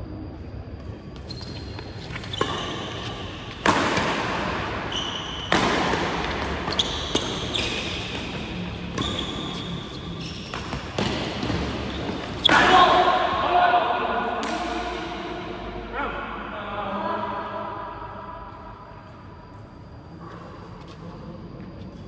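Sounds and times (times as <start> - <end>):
shoes squeaking on floor: 1.1 - 3.6, 4.9 - 5.6, 6.2 - 12.7
racket hitting shuttlecock: 2.1 - 13.3.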